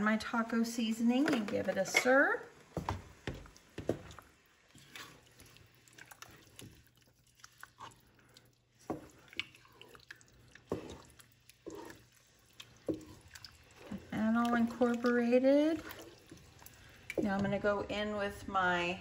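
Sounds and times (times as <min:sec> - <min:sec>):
wet squishes of stirring: 0:01.0 - 0:18.4.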